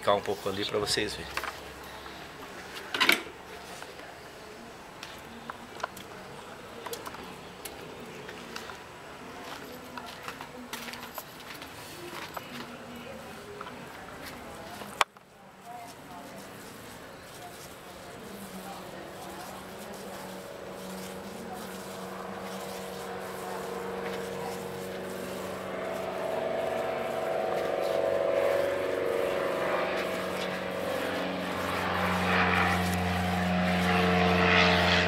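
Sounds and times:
motor droning: 18.2s - 35.0s.

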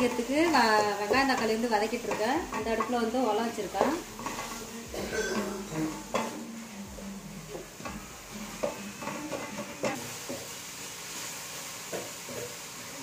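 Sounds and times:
spatula scraping pan: 0.0s - 6.5s, 7.4s - 10.5s
food sizzling: 0.0s - 13.0s.

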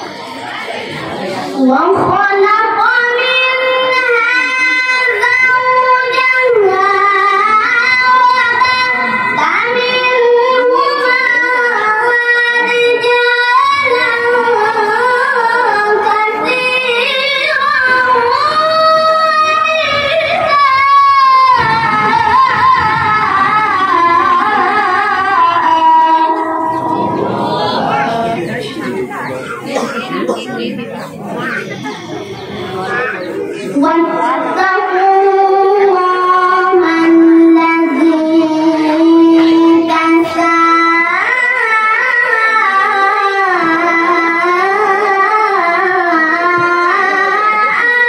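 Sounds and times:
boy reciting melodically into microphone: 0.0s - 48.0s.

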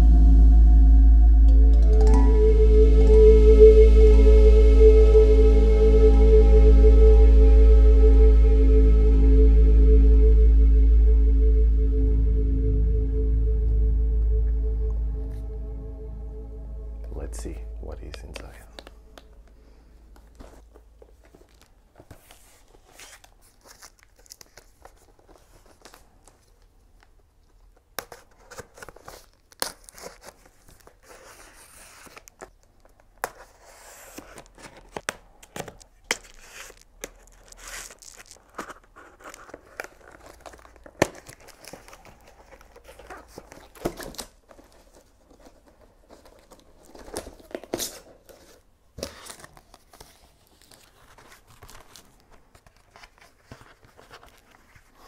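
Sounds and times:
plastic mailer tearing and crinkling: 34.2s - 45.0s.

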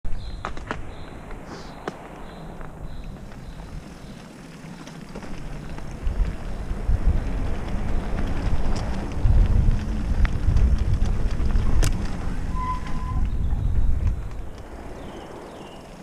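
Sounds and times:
bike tyres rolling on dirt: 0.1s - 16.0s
wind buffeting microphone: 0.1s - 16.0s
bike knocks and rattles: 1.8s - 14.8s
whistle-like note: 12.5s - 13.3s.

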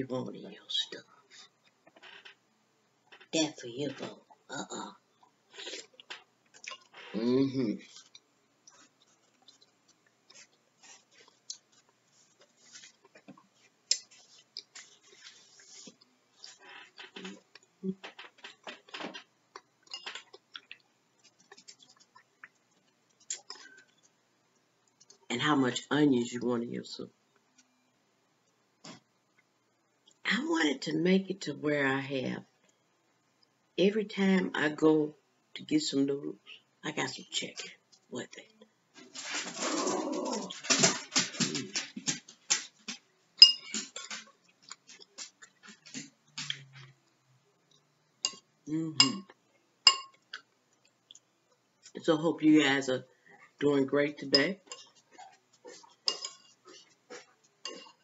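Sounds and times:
person chewing: 5.2s - 7.0s, 7.9s - 16.6s, 19.5s - 25.3s, 42.7s - 46.9s, 54.7s - 58.0s
chewing and lip smacking: 7.9s - 12.0s, 19.5s - 25.3s
spoon clicking on ceramic bowl: 43.4s - 43.8s, 49.9s - 50.2s.

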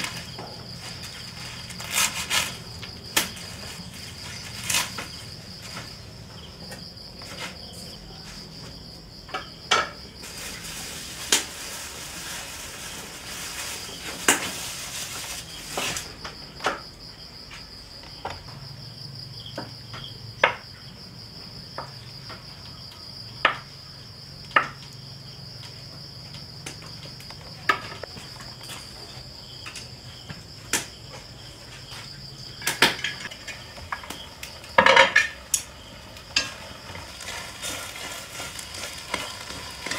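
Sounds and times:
insect chirring: 0.0s - 39.9s
utensils knocking on pots: 34.8s - 35.7s.

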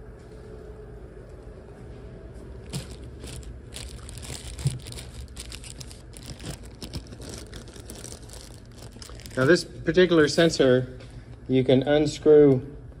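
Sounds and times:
low hum: 0.0s - 9.9s
rustling and handling clicks: 2.7s - 9.6s.

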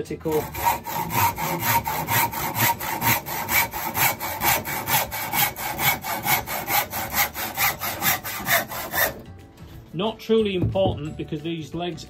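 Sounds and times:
handsaw cutting wood: 0.0s - 9.2s.

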